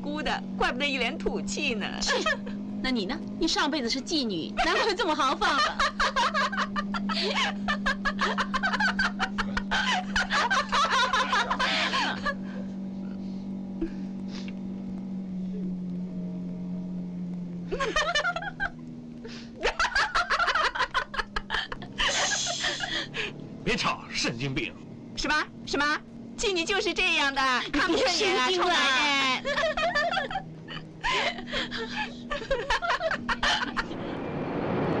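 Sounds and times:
steady low hum: 0.0s - 35.0s
women laughing: 2.0s - 2.6s, 4.6s - 12.7s, 17.7s - 18.8s, 19.5s - 23.4s, 27.5s - 34.0s.

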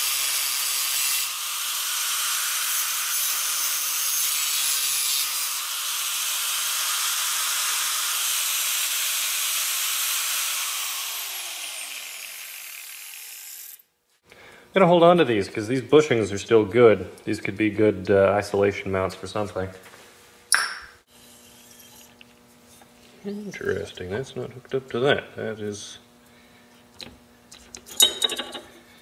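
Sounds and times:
angle grinder cutting metal: 0.0s - 13.8s, 21.1s - 22.9s.

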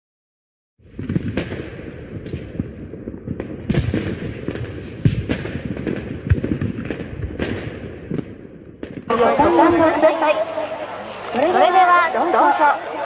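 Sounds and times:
fireworks bangs and crackles: 0.8s - 12.9s
firework whistle: 3.3s - 5.3s.

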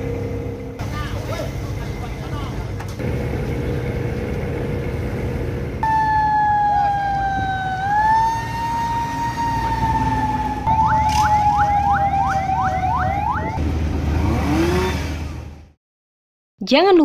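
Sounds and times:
fire truck siren wailing: 3.0s - 13.6s
siren rapid upward sweeps: 5.8s - 13.6s.

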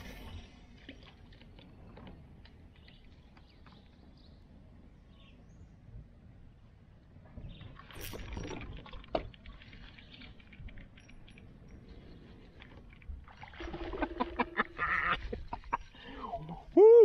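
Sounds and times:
water splashing: 12.4s - 15.8s.

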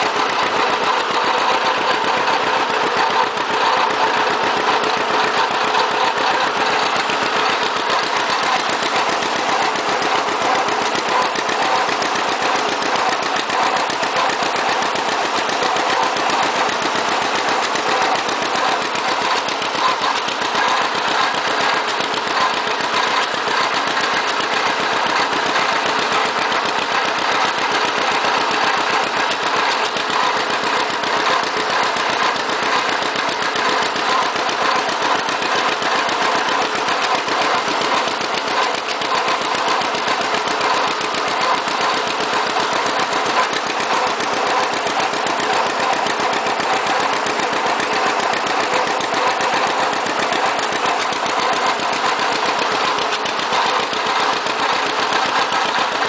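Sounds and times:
tractor engine running: 0.0s - 56.0s.

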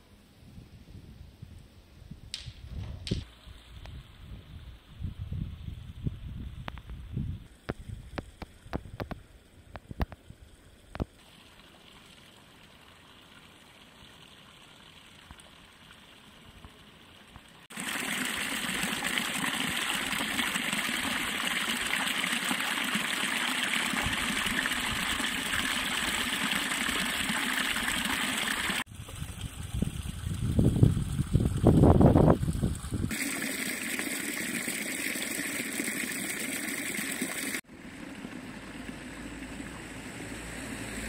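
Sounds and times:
running water: 9.8s - 41.0s.

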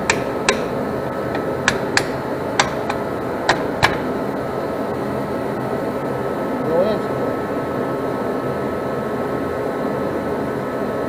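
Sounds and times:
metal brake parts clicking: 0.0s - 4.2s
steady background noise: 0.0s - 11.0s.

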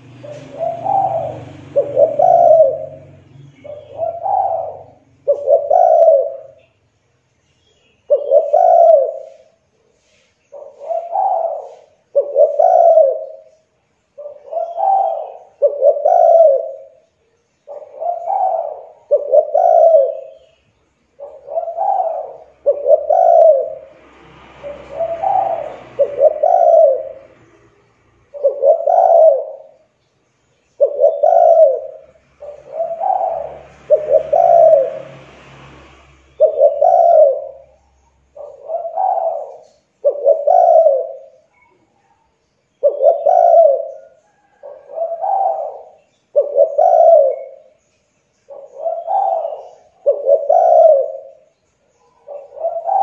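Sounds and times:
dove cooing: 0.0s - 6.7s, 7.8s - 30.0s, 30.6s - 35.3s, 36.2s - 53.0s
faint background hiss: 0.0s - 53.0s.

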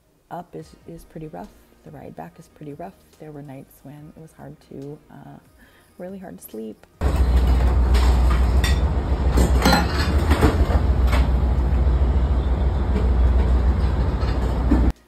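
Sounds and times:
boat engine low rumble: 7.0s - 14.9s.

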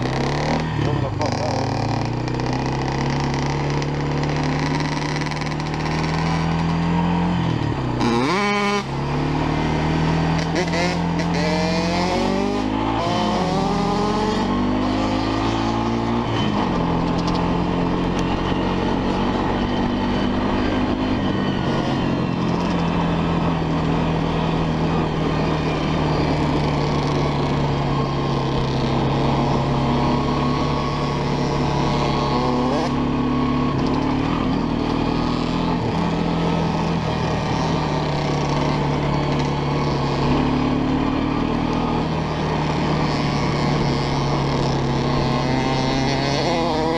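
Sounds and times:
atv engine accelerating: 0.0s - 46.9s.

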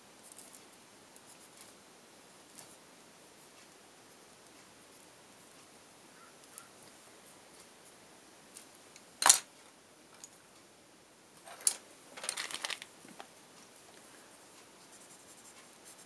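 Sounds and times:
rattling of pencils: 9.2s - 9.5s, 11.4s - 13.3s.

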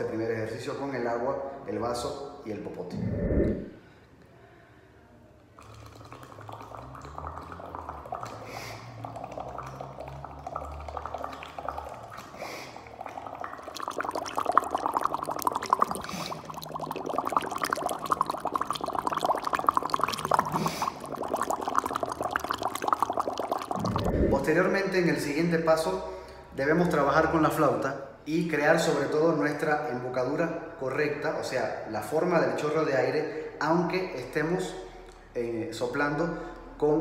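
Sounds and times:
air bubbling through straw in water: 2.9s - 3.8s, 5.6s - 24.8s.

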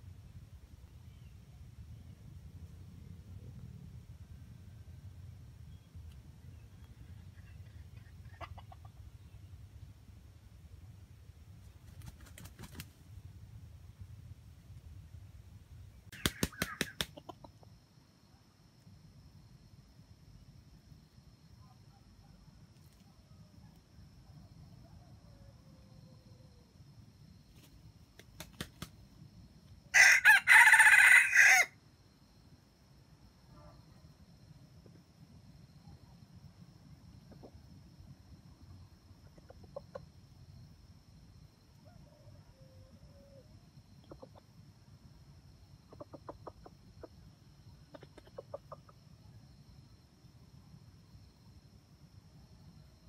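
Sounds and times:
junglefowl clucking: 7.3s - 9.1s, 16.1s - 17.7s, 44.0s - 44.5s, 45.9s - 47.2s, 47.8s - 49.0s
rooster crowing: 29.9s - 31.8s, 41.8s - 43.4s.

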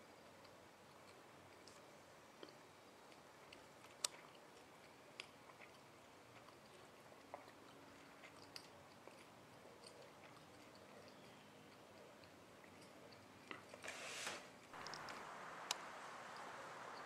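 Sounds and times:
soft clicks and ticks: 0.1s - 13.8s, 14.7s - 17.0s
faint hiss: 13.8s - 17.0s.

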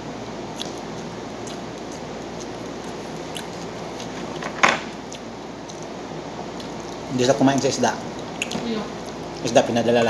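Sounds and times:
wet mouth clicks and chewing: 0.5s - 4.4s, 5.0s - 5.9s, 6.6s - 9.4s.

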